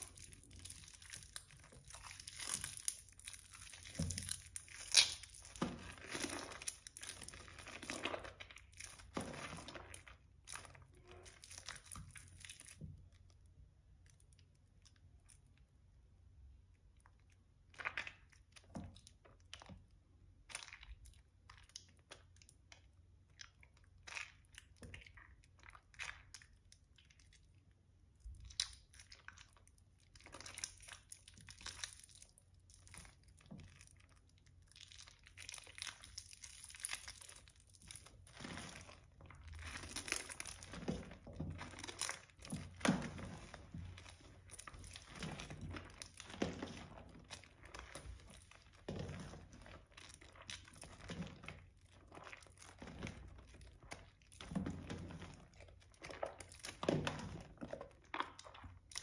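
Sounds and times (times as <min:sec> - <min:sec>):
wet soap squishing and crunching: 0:00.0 - 0:59.0.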